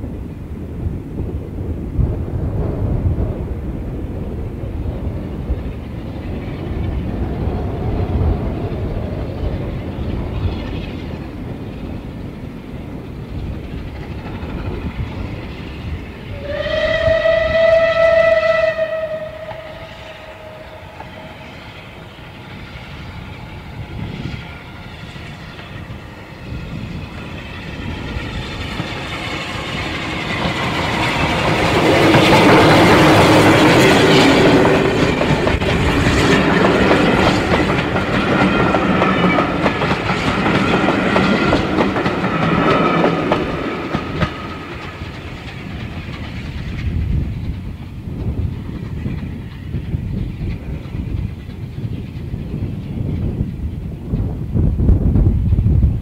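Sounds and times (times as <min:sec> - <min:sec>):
steam locomotive working hard: 0:00.0 - 0:56.0
train coaches rolling past: 0:00.0 - 0:56.0
steam locomotive whistle: 0:16.3 - 0:22.1.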